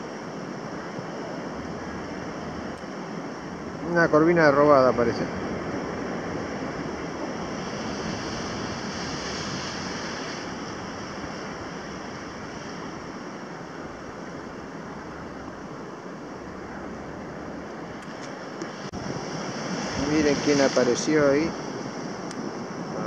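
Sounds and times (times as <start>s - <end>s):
surf breaking against rocks: 3.7s - 15.3s, 18.7s - 22.9s.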